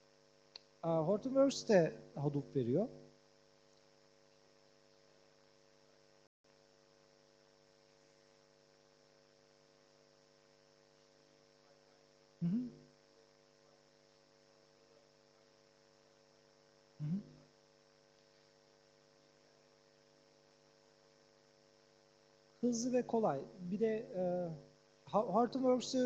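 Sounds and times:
electrical mains hum: 0.0s - 26.0s
short voice sounds: 12.4s - 12.8s, 17.0s - 17.4s.

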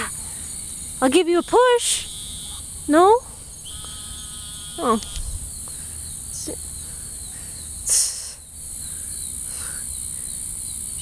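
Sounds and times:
insects buzzing and trilling: 0.0s - 11.0s
loud hissing noise: 4.8s - 11.0s.

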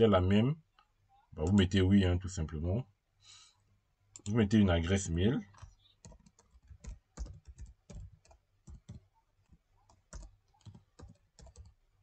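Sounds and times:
keyboard typing: 1.4s - 1.7s, 5.5s - 11.8s.

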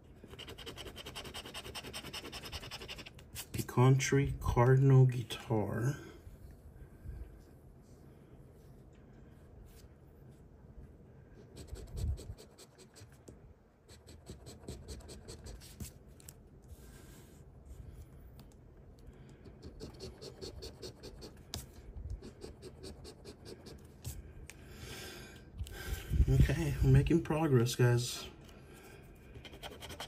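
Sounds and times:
coin scraping scratch card: 0.3s - 3.2s, 29.4s - 30.0s.

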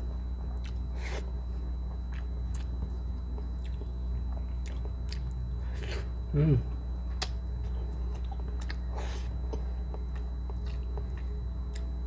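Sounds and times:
steady low hum: 0.0s - 12.0s
mouth chewing food: 3.4s - 5.4s, 7.1s - 11.9s.

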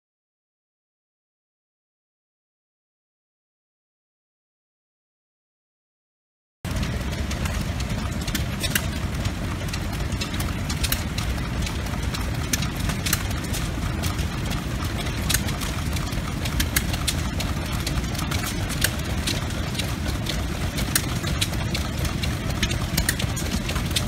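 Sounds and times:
sharp clicks and knocks: 6.7s - 24.0s
stationary engines rumbling: 6.7s - 24.0s.

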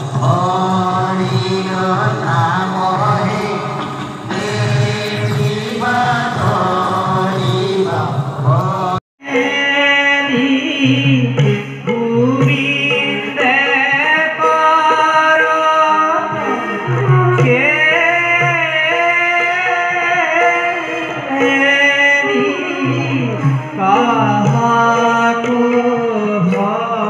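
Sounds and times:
person singing over drums: 0.0s - 27.0s.

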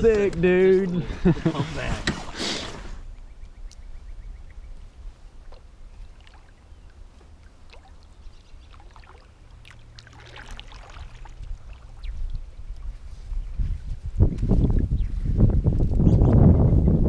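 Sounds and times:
water lapping and trickling: 1.8s - 13.4s
small splashes: 5.4s - 12.8s.

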